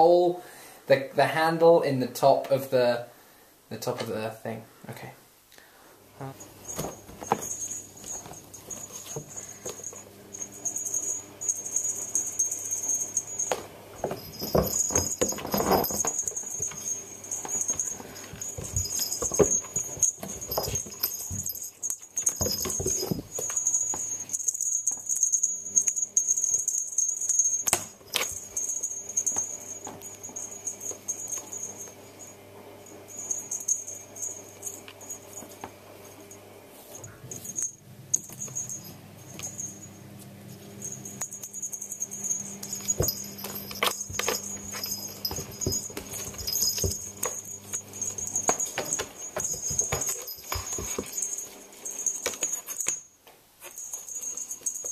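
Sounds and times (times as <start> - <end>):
faint steady hum: 0.0 - 54.9
toy slapping floorboards: 42.6 - 53.0.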